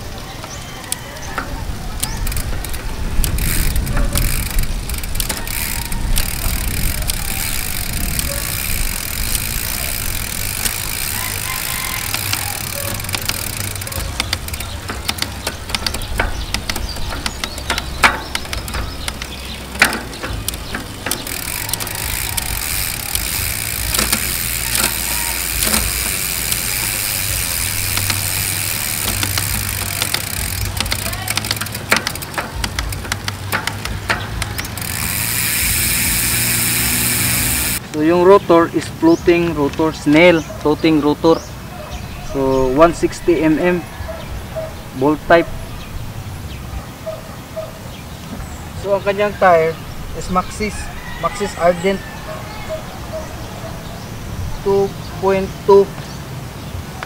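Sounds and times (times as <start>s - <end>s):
bicycle chain whirring: 0.0s - 41.4s, 42.3s - 46.7s, 47.5s - 55.9s
derailleur shifting clicks: 0.0s - 41.4s.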